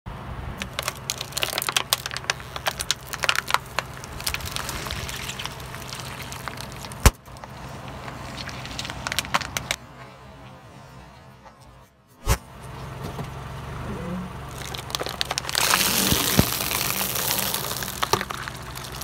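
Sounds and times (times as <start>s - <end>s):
car hum: 0.1s - 19.0s
plastic bottle crackling under tyre: 0.6s - 9.8s, 14.4s - 19.0s.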